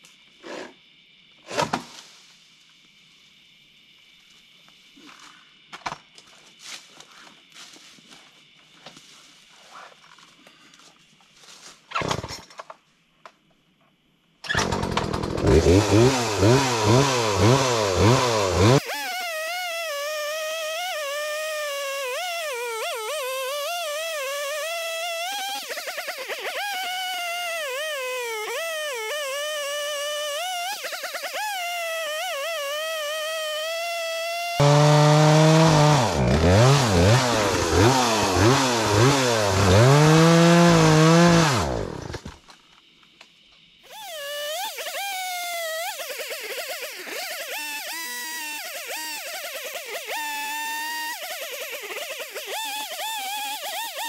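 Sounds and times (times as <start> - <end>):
chainsaw cutting wood: 14.5 - 42.5, 43.9 - 54.0.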